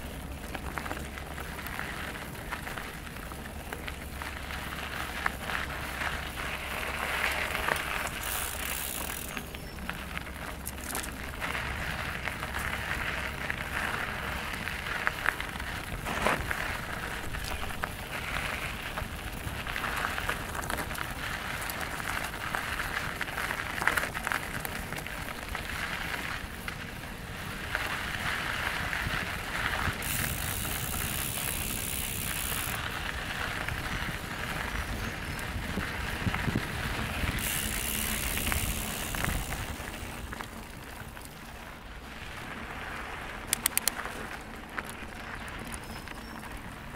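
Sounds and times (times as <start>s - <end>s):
bike rattles and clicks: 0.0s - 46.9s
bike tyres crunching over dirt: 0.0s - 46.9s
steady rustling noise: 0.0s - 46.9s.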